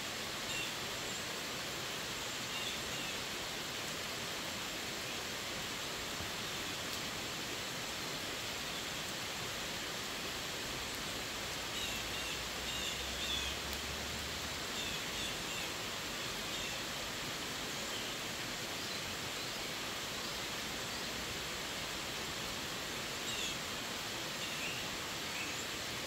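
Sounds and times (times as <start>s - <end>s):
heavy rain on trees and road: 0.0s - 26.0s.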